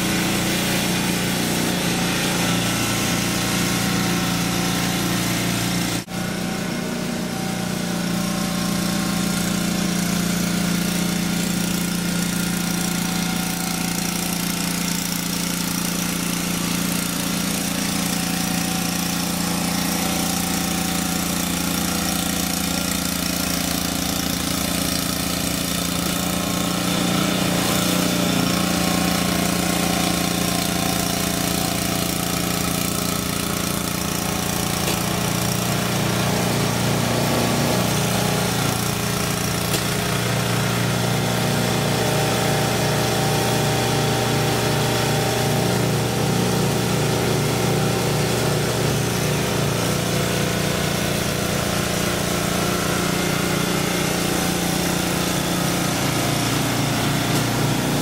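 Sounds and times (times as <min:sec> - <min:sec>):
snow blower engine running: 0:00.0 - 0:58.0.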